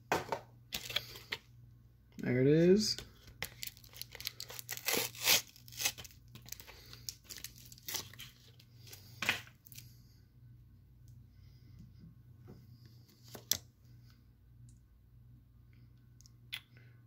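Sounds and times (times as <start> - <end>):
plastic wrapper tearing and crinkling: 3.3 - 8.6.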